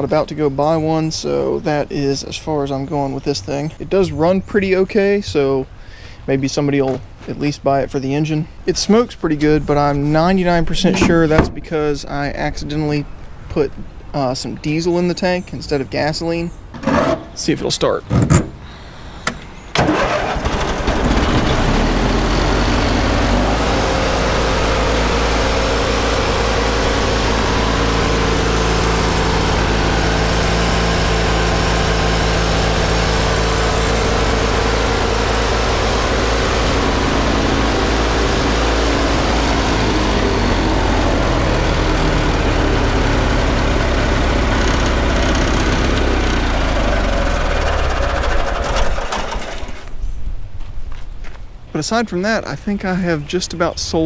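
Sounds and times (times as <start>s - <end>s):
mower engine starting and running: 18.5s - 50.0s.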